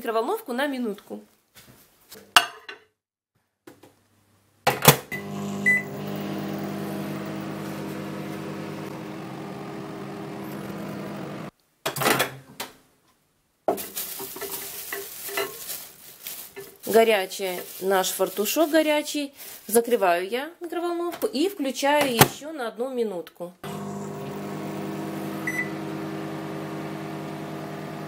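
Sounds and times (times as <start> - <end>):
microwave oven humming: 5.1 - 11.5, 23.6 - 28.0
handling noises: 13.7 - 19.8.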